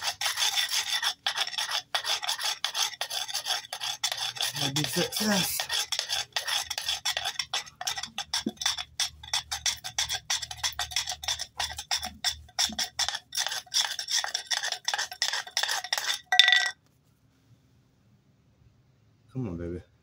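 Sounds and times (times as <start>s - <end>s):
fast rasping of rolling board: 0.0s - 16.3s.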